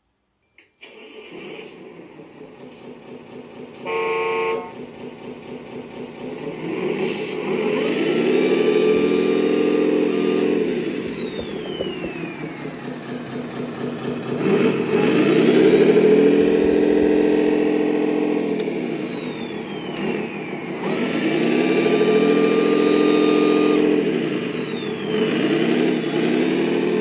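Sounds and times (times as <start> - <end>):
simulated diesel engine revving: 0.8 - 27.0
toy truck horn blast: 3.8 - 4.8.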